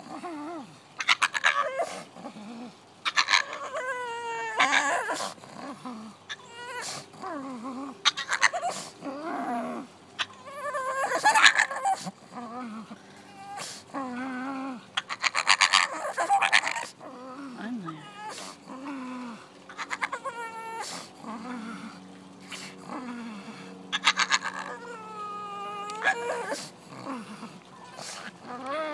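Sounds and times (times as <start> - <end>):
dog making wavering calls: 1.0 - 2.0, 3.0 - 7.0, 8.0 - 8.9, 9.5 - 12.1, 15.0 - 17.0, 19.6 - 21.0, 23.9 - 26.7.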